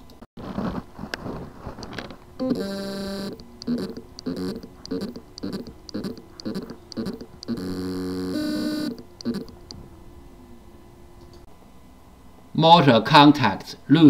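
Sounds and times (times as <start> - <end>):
hard drive motor buzzing: 1.8 - 11.1.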